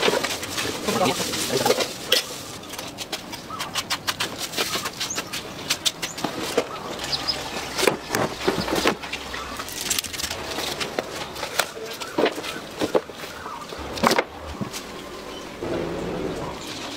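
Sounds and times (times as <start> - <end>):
bird chirps: 14.5 - 16.9.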